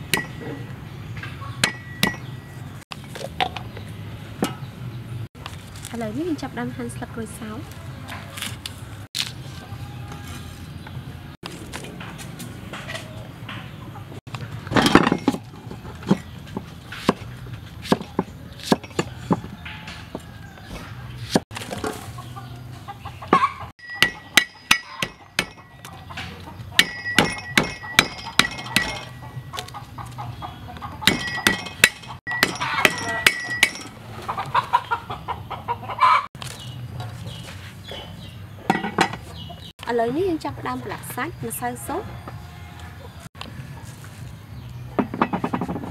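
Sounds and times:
chickens clucking: 0.0s - 2.8s, 12.7s - 14.7s, 15.4s - 27.1s, 27.8s - 39.7s.

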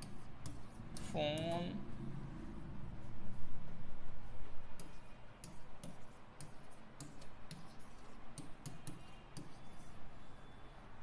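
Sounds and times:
marker pen tapping on board: 0.0s - 1.7s, 4.7s - 9.6s.

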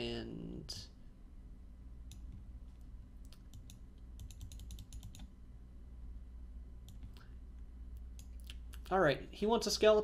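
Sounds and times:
faint low hum: 0.0s - 10.0s
keyboard and mouse clicks: 2.1s - 2.5s, 3.2s - 5.3s, 6.8s - 7.3s.

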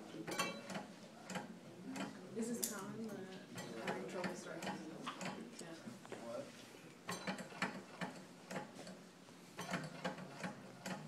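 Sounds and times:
fan mechanism clicking: 0.3s - 5.4s, 7.1s - 9.0s, 9.6s - 11.0s.

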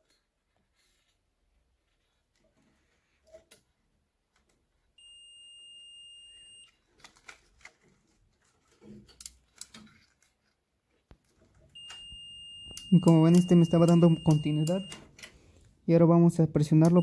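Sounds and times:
multimeter high beep: 5.0s - 6.8s, 11.8s - 15.1s, 16.7s - 17.0s.

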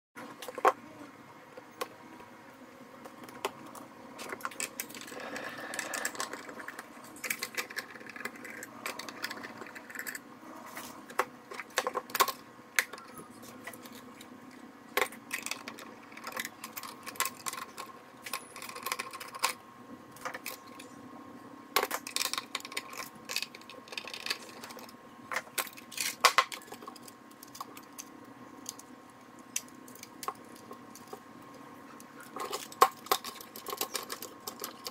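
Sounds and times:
faint steady hum: 0.2s - 34.9s
clicks and knocks of plastic parts: 32.2s - 34.9s.

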